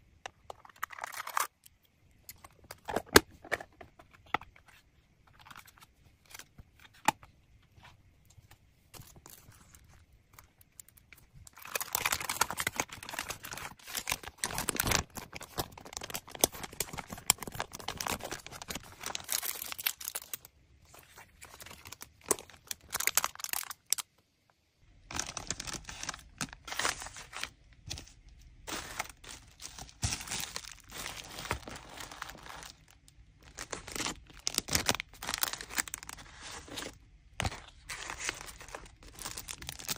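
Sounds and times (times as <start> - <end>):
plastic bags crinkling: 10.6 - 24.0, 25.1 - 39.9.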